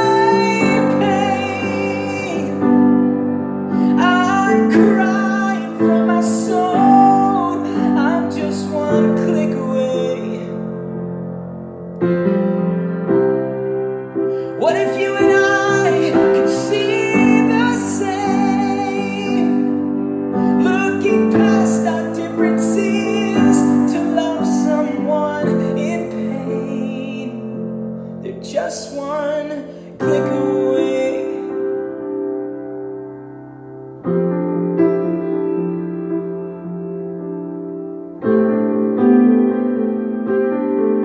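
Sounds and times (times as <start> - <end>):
man singing: 0.0 - 3.0, 3.7 - 10.8, 14.5 - 31.8
piano chords: 0.0 - 41.0.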